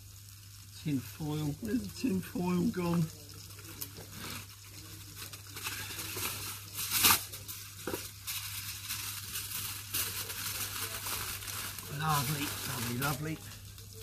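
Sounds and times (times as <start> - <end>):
tin foil crinkling and tearing: 0.4 - 14.0.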